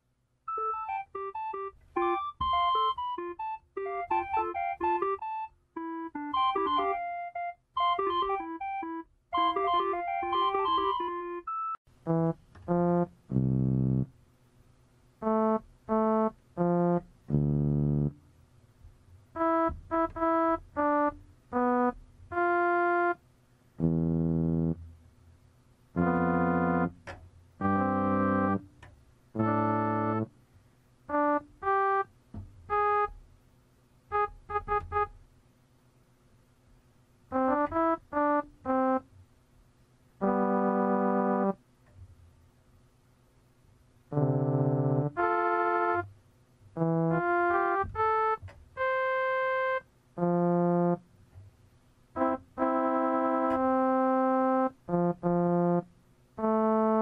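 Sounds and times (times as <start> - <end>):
sparse keyboard music: 0.5 - 14.1, 15.2 - 18.2, 19.4 - 23.2, 23.8 - 24.8, 26.0 - 28.7, 29.4 - 30.3, 31.1 - 32.1, 32.7 - 33.1, 37.3 - 39.0, 40.2 - 41.6, 44.1 - 46.1, 46.8 - 51.0, 52.2 - 57.0.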